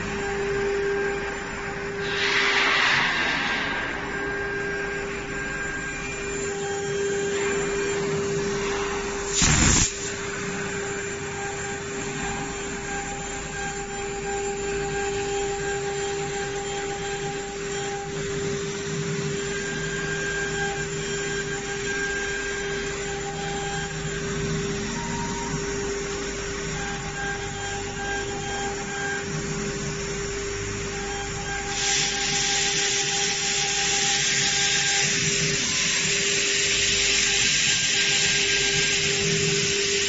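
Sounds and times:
router spindle whine: 0:00.0 - 0:02.2, 0:03.3 - 0:40.0
bit cutting hiss: 0:09.3 - 0:10.1.

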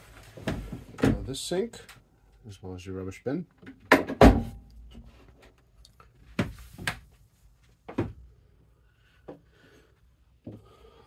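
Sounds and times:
wooden knocks and thuds: 0:03.7 - 0:04.6, 0:07.9 - 0:08.2.

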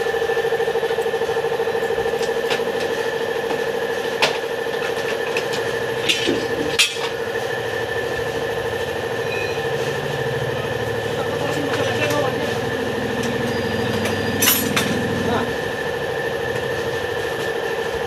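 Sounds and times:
steady mechanical drone: 0:00.0 - 0:18.0
metallic clinks of tools: 0:13.5 - 0:15.0.

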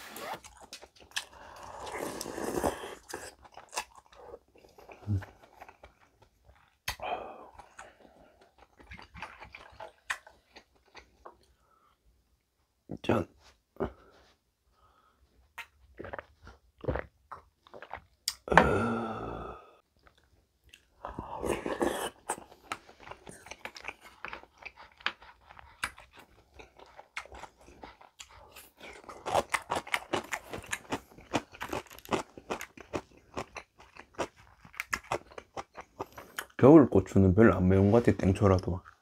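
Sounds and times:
chewing with crunches: 0:00.3 - 0:12.0, 0:15.4 - 0:18.5, 0:19.9 - 0:36.6
wet mouth clicks: 0:06.8 - 0:07.0, 0:16.9 - 0:18.5
person swallowing drink: 0:15.6 - 0:20.2.

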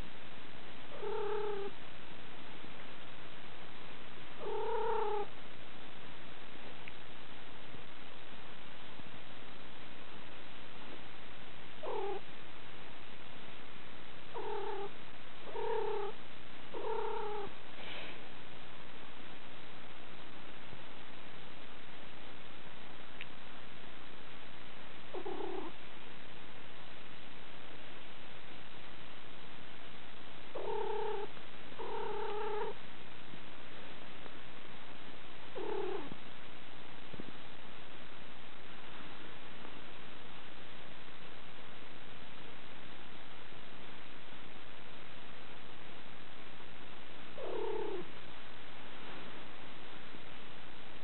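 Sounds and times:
cat calling: 0:00.9 - 0:01.7.

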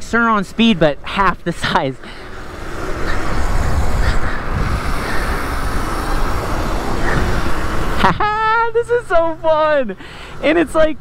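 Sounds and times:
tyre noise: 0:00.0 - 0:09.8
wind rushing over microphone: 0:02.0 - 0:09.7.

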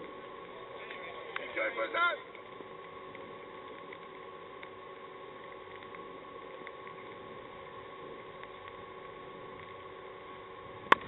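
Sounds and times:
faint constant hum: 0:00.0 - 0:11.0
faint ticks: 0:02.3 - 0:09.9.

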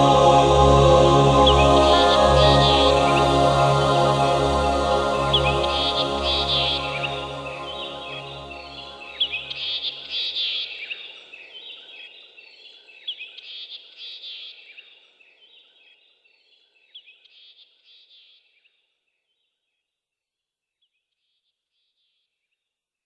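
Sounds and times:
held music notes: 0:00.0 - 0:10.0.

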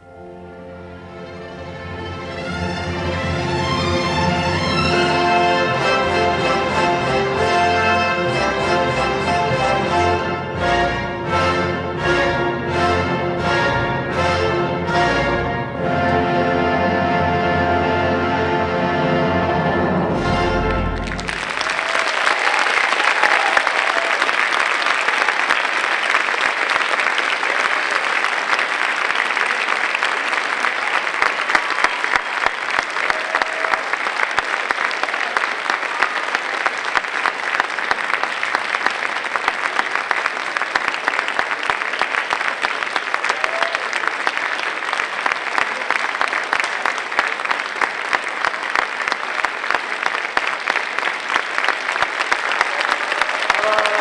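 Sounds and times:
audience applauding: 0:20.5 - 0:54.0.

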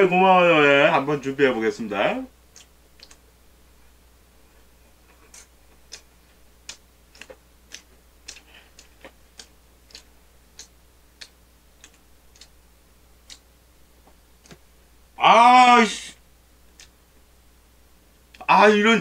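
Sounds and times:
low steady hum: 0:00.0 - 0:19.0
faint sharp clicks: 0:02.5 - 0:03.2, 0:05.2 - 0:12.6, 0:16.7 - 0:17.0.

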